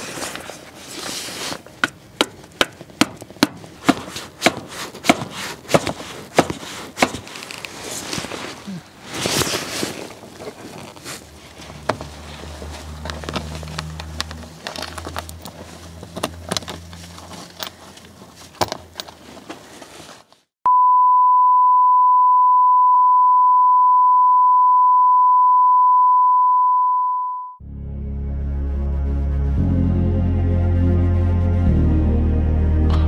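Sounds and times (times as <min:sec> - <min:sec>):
steady electronic beep: 0:20.7 - 0:27.6.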